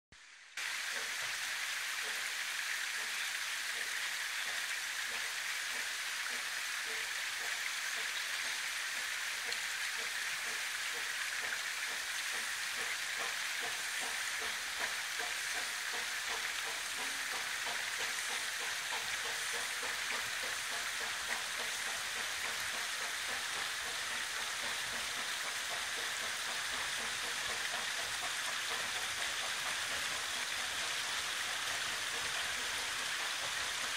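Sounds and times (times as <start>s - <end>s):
steam locomotive exhaust beats: 0.6s - 33.9s.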